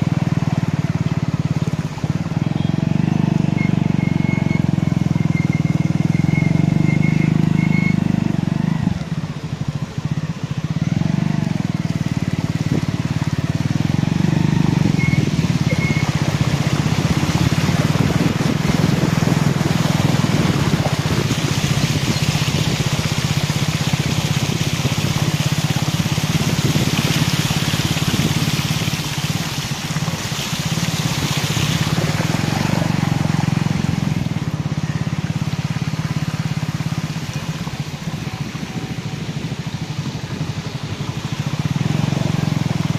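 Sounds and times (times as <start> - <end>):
vehicle engine running: 0.0 - 42.9
water splashing: 0.0 - 42.9.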